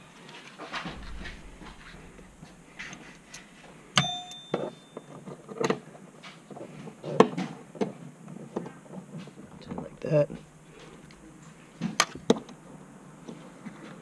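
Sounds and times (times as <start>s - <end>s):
sharp ringing metal clang: 4.0s - 5.1s.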